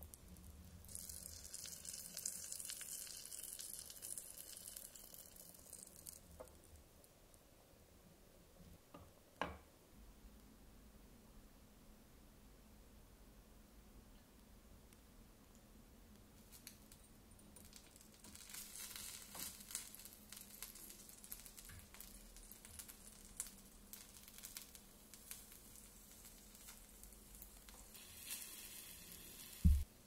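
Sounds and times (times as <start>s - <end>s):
food sizzling in frying pan: 0.0s - 6.5s, 17.6s - 29.9s.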